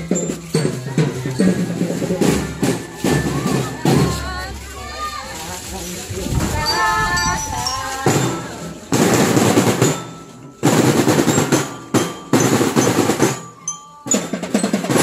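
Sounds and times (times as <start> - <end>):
snare drum rolls: 6.0 - 13.5.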